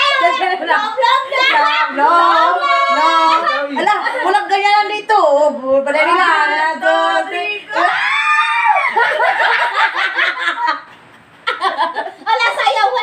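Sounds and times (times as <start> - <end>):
high drawn-out scream: 7.7 - 9.0
women shrieking and laughing: 7.7 - 10.9.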